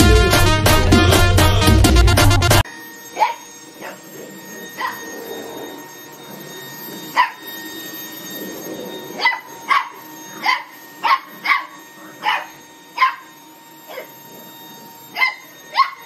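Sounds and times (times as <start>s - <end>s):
vacuum motor whine: 0.0s - 16.0s
puppy barking: 3.2s - 5.2s, 7.1s - 7.4s, 9.2s - 13.3s, 13.9s - 14.2s, 15.1s - 16.0s.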